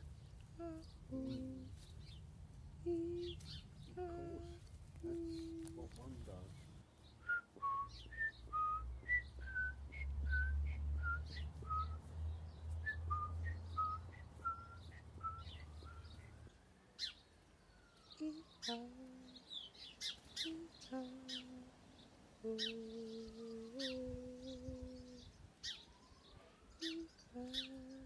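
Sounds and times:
birds chirping: 0.0 - 28.0
person whistling: 7.3 - 12.0, 12.8 - 16.1.

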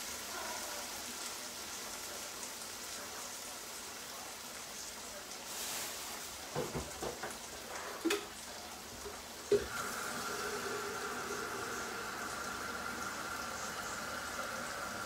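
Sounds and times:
sauce sizzling in a frying pan: 0.0 - 15.0
utensils knocking on pans: 6.5 - 8.3.

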